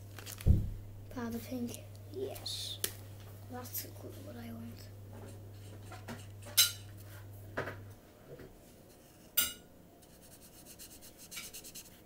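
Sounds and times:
marker scratching on paper: 10.0 - 12.0.

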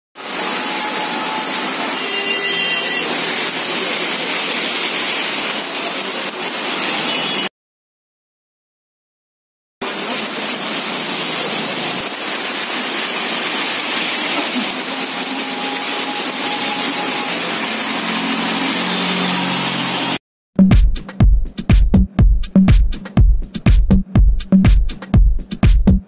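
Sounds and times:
heavy rain on a wet road: 0.2 - 7.5, 9.8 - 20.2
electronic dance music: 14.8 - 26.0.

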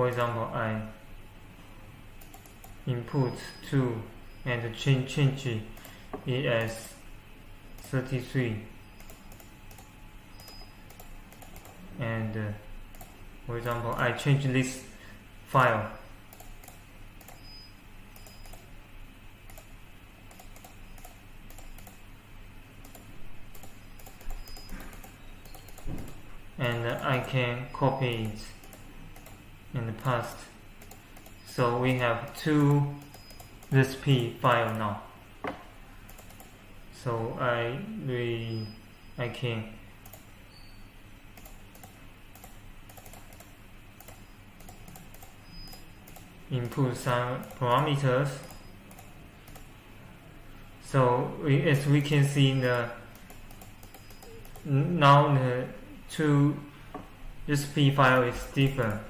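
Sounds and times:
faint steady hum: 0.0 - 59.0
keyboard and mouse clicking: 2.2 - 2.8, 9.0 - 11.9, 12.9 - 13.8, 16.3 - 18.7, 19.5 - 19.7, 20.3 - 22.0, 22.8 - 27.4, 28.1 - 29.4, 30.8 - 31.5, 32.2 - 34.8, 36.1 - 36.5, 40.0 - 40.3, 41.3 - 46.8, 47.4 - 49.7, 52.6 - 54.7.

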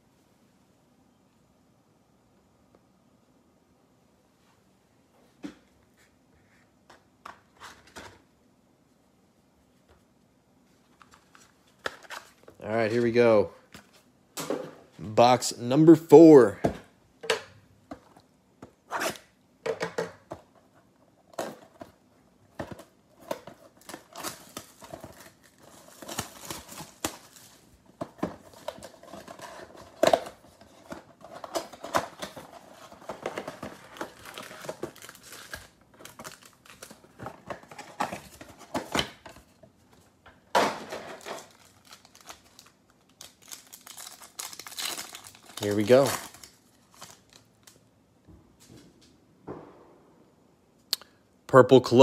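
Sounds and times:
plastic wrap crinkling and tearing: 23.7 - 27.7, 28.4 - 38.6, 41.1 - 47.8.

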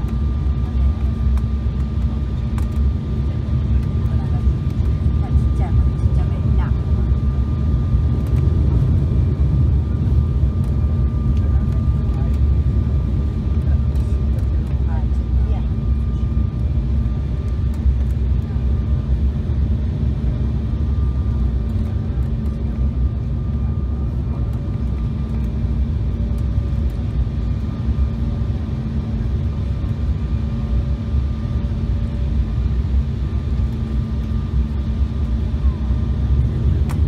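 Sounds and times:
engine and airflow rumble: 0.0 - 37.0.

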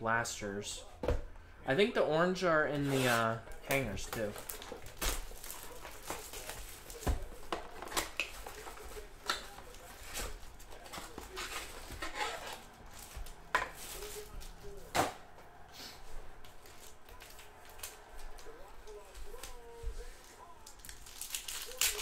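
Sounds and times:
plastic wrapper crinkling: 3.5 - 13.2, 20.3 - 22.0.

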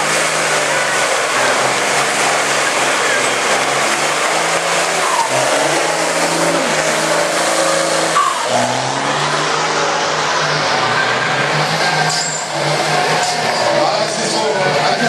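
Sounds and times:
short gliding squeals: 4.8 - 9.1, 10.4 - 13.8.

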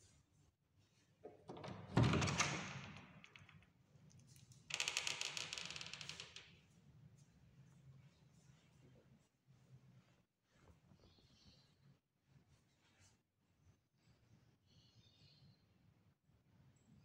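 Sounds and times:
door thumping: 1.5 - 3.1.

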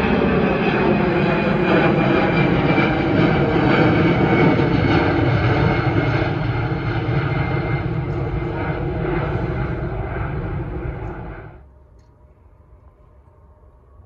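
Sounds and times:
jet airliner flying overhead: 0.0 - 14.0.

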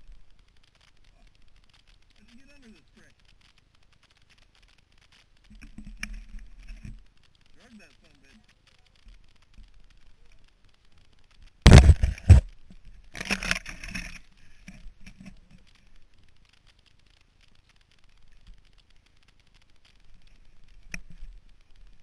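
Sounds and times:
faint rustling: 0.0 - 22.0
dirt bike scraping over log: 11.7 - 12.5.

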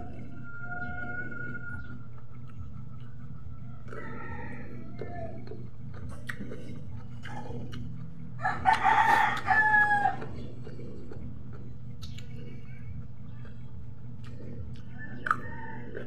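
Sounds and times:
rooster crowing: 0.0 - 1.9, 3.7 - 5.4, 8.4 - 10.3, 15.0 - 16.0
steady low hum: 0.0 - 16.0.

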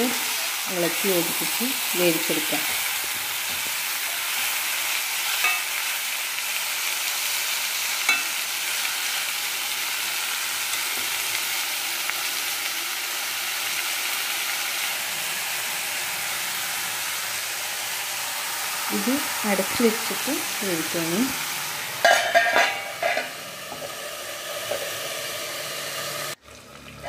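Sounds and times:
chicken sizzling in oil: 0.0 - 27.0
spatula clinking against pan: 5.4 - 5.7, 8.1 - 8.4.

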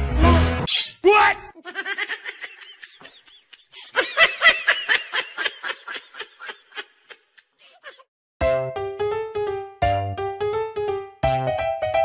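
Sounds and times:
woman giggling: 1.6 - 8.1.

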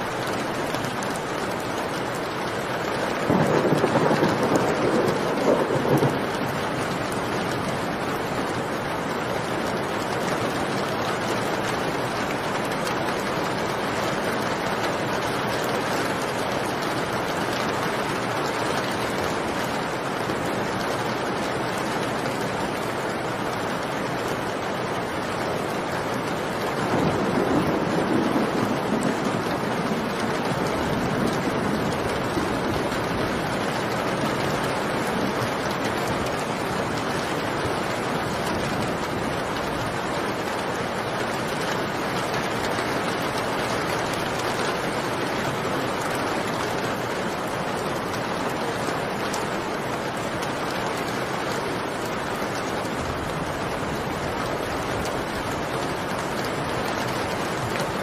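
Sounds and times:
heavy rain: 0.0 - 58.0
low rumble of thunder: 3.1 - 8.3, 26.7 - 36.2.

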